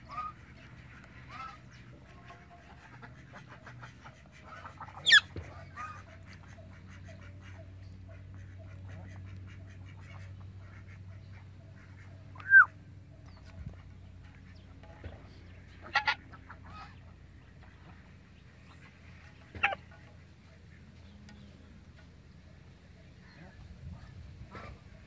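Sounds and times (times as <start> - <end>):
parrot shrill squawk: 5.0 - 6.0, 12.4 - 12.7
faint short bird calls: 5.0 - 13.8.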